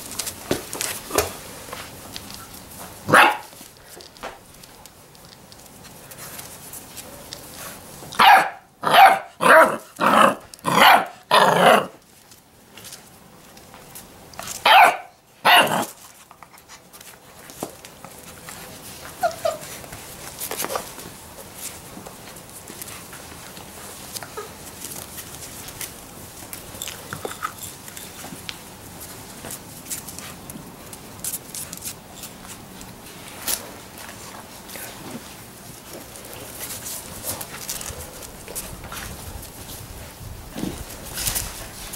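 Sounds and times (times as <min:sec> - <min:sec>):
puppies barking: 0:03.1 - 0:03.5, 0:08.2 - 0:11.9, 0:14.6 - 0:15.9.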